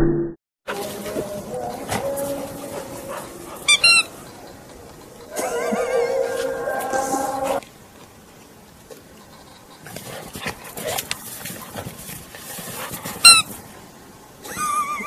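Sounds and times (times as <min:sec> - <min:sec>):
dog crunching through snow: 0:09.8 - 0:13.6.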